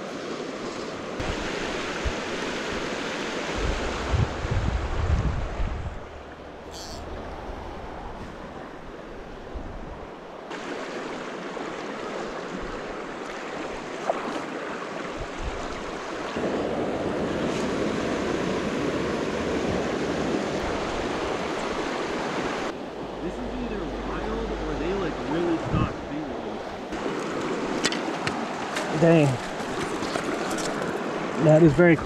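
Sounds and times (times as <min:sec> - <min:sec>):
stream running over stones: 0:00.0 - 0:04.5, 0:10.3 - 0:16.6, 0:20.2 - 0:32.0.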